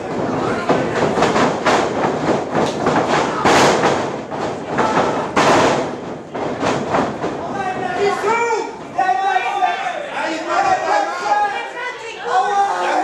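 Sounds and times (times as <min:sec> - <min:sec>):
bodies hitting wrestling ring: 0:00.0 - 0:09.3
crowd noise in a hall: 0:00.0 - 0:13.0.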